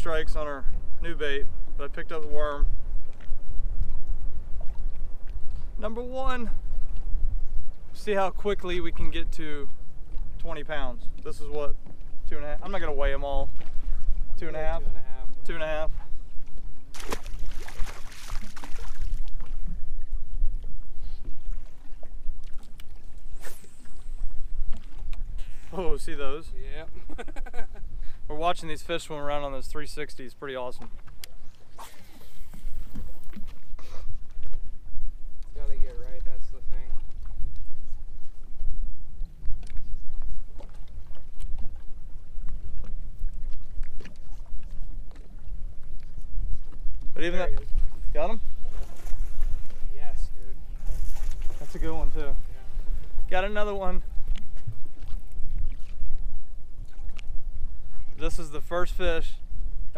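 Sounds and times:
water and wind around hull: 0.0 - 59.9
fish splashing in water: 16.9 - 19.6.

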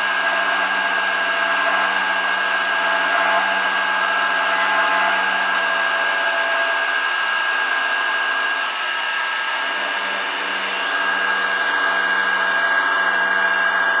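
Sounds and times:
mill spindle high whine: 0.0 - 14.0
mill cutting acrylic: 9.6 - 14.0.

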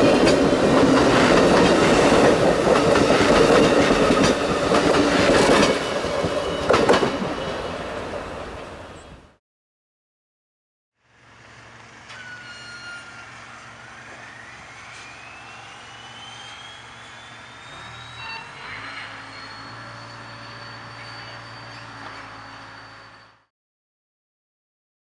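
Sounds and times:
diesel locomotive engine: 0.0 - 9.2, 11.0 - 23.5
high rising whine: 11.2 - 23.5.

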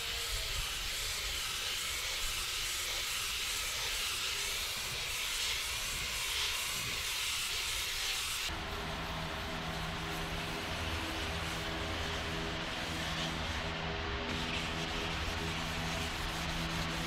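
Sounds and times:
paint spray gun hissing: 0.0 - 13.6, 14.3 - 17.0.

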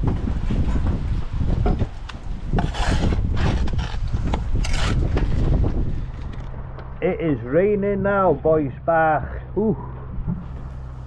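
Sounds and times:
wind rumble on microphone: 0.0 - 7.3
rough scraping and rubbing: 2.5 - 6.6.

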